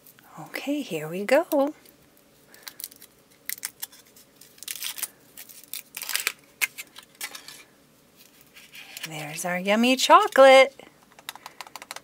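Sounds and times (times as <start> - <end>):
foil wrapper crinkling: 2.5 - 7.7.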